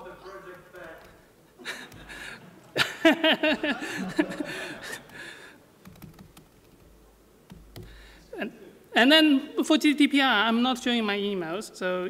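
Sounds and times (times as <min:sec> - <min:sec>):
man laughing: 0:01.6 - 0:05.3
laptop keyboard clicks: 0:05.8 - 0:06.9, 0:07.5 - 0:08.0.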